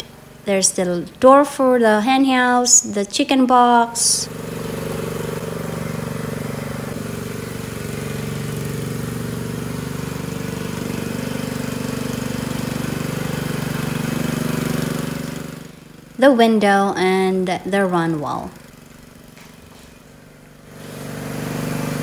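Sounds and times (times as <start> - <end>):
small engine running: 0.0 - 3.0, 3.9 - 22.0.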